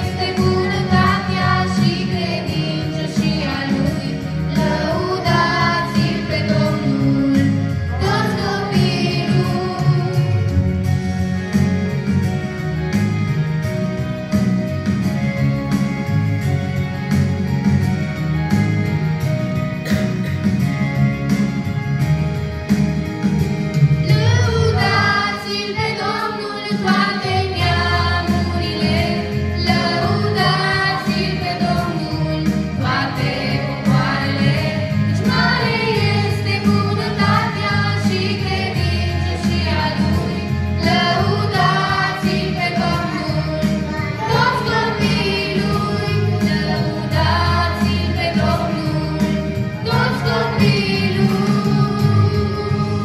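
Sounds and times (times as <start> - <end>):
group singing worship song: 0.0 - 10.5, 24.1 - 53.0
instrumental accompaniment with bass: 0.0 - 53.0.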